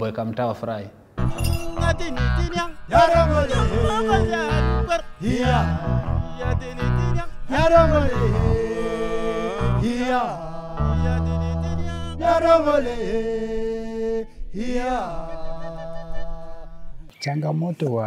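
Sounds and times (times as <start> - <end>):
group chant-like singing: 1.4 - 17.1.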